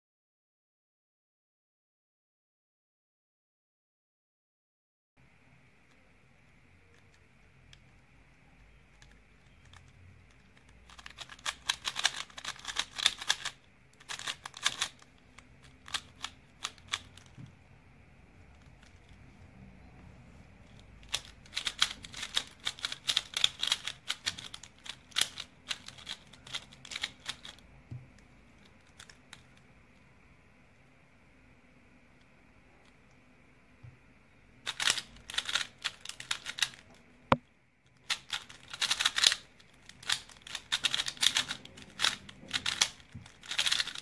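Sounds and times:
puzzle cube layers clacking: 8.9s - 17.4s, 20.7s - 27.6s, 34.7s - 37.1s, 38.0s - 44.0s.

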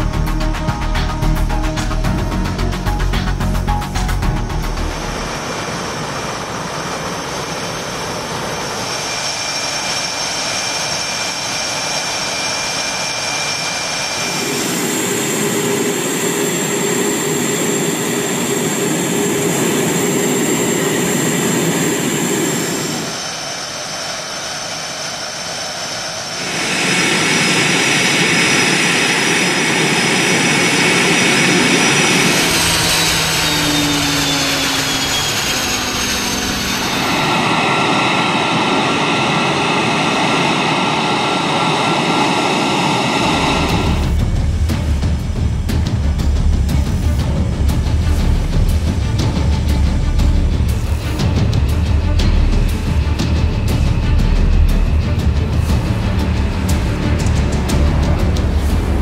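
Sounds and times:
high turbine whine: 0.0s - 59.0s
jet engine exhaust rushing: 0.0s - 59.0s.

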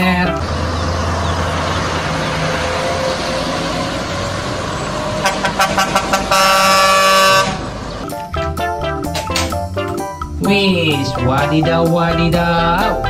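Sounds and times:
heavy trucks driving by: 0.0s - 13.0s
long truck horn blast: 0.5s - 7.8s
short horn toots: 5.2s - 7.6s.

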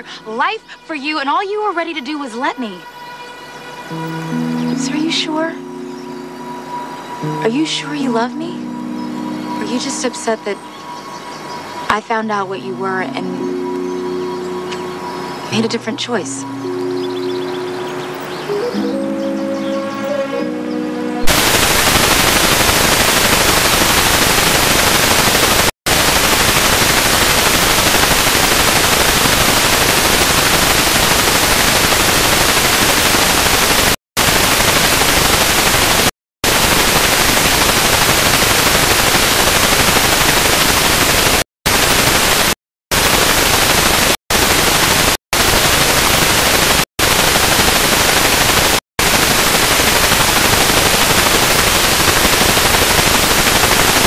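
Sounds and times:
tv static hiss: 3.8s - 13.0s, 21.2s - 54.0s.

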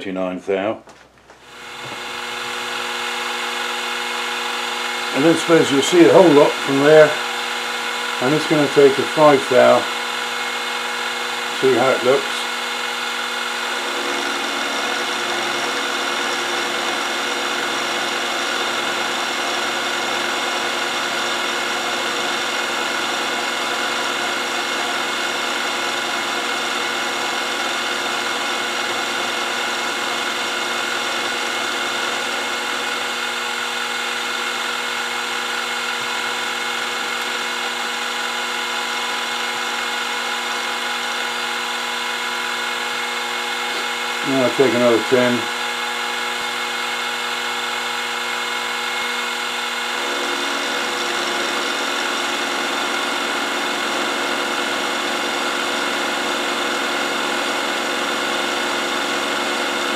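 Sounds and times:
milling machine motor whining: 1.4s - 59.9s.

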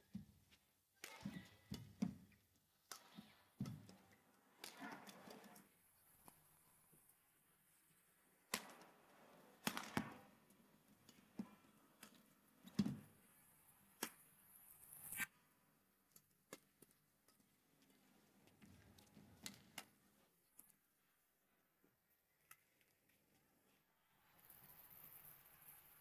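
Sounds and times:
racket hitting shuttlecock: 1.0s - 2.2s.

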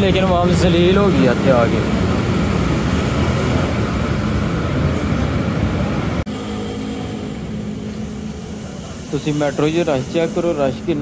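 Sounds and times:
bus engines rumbling: 0.0s - 11.0s
engine hum with low tone: 5.8s - 11.0s.

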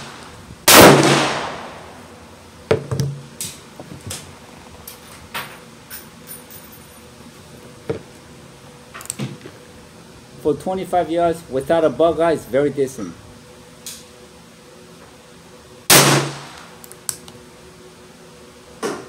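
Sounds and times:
quieter bangs: 0.0s - 2.0s
revolver gunshot with echo: 0.7s - 2.0s, 15.9s - 16.7s.

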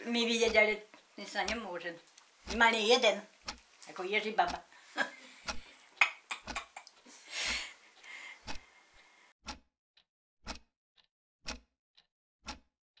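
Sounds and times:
clock ticking: 0.0s - 13.0s
soft breathy noise: 7.0s - 9.3s.

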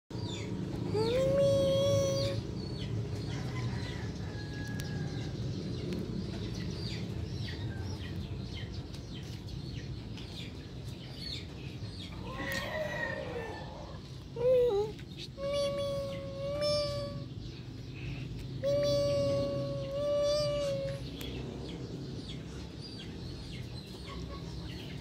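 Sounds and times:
small birds chirping: 0.1s - 25.0s
kitten mewing: 0.9s - 2.4s, 14.4s - 17.3s, 18.6s - 21.2s
long held bird call: 14.4s - 17.4s, 18.6s - 21.2s
chickens clucking: 23.5s - 25.0s.

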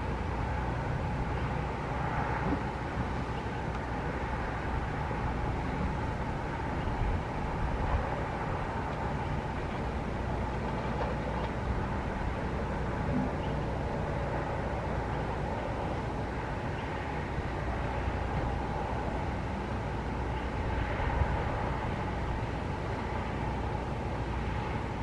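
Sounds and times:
street traffic noise: 0.0s - 25.0s
wind rumbling on microphone: 0.0s - 25.0s.

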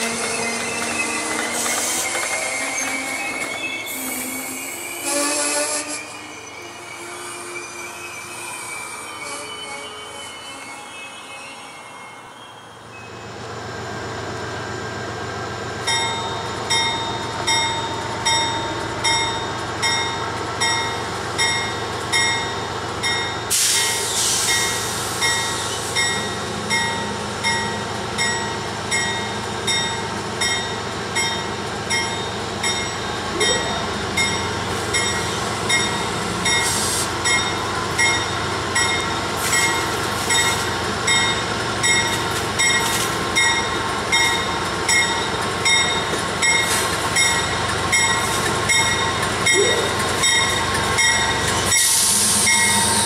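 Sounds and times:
locomotive bell ringing: 15.5s - 53.0s
air hissing: 23.5s - 26.0s, 36.5s - 37.3s, 51.6s - 53.0s.

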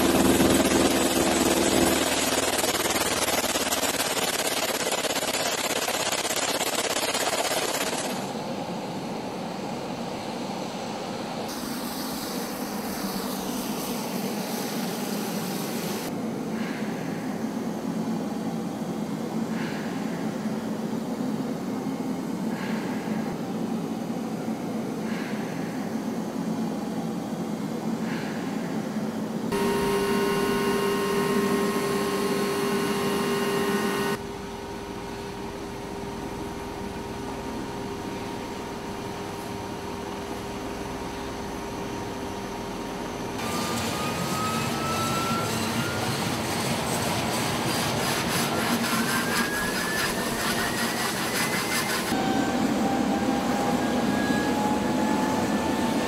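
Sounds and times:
turbine engine whine: 0.0s - 56.0s
rotor noise: 29.5s - 34.2s.

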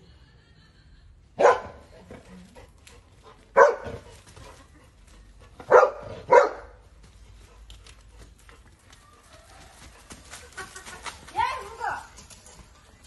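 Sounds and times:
dog barking: 1.4s - 1.8s, 3.6s - 4.1s, 5.7s - 6.8s.

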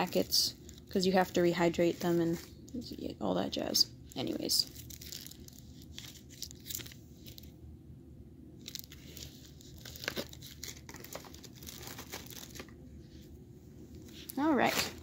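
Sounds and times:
packaging crinkling and rustling: 4.1s - 7.5s, 8.6s - 12.8s, 14.0s - 15.0s.

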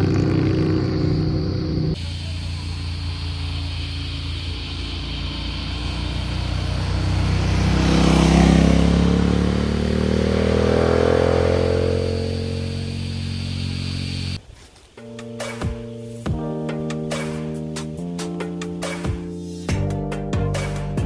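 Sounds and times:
motorcycle passing and accelerating: 0.0s - 14.4s.

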